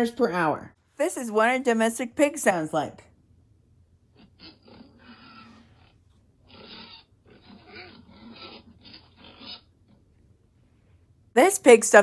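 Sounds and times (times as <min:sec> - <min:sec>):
pig grunting: 0:04.1 - 0:10.0.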